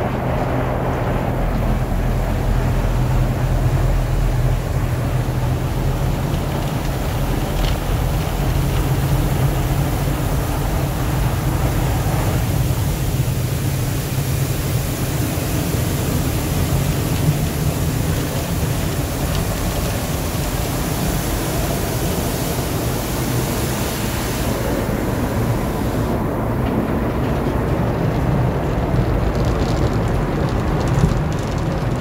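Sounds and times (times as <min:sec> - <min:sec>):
low hum of machinery: 0:00.0 - 0:30.0
water spray beating on glass: 0:01.4 - 0:26.3.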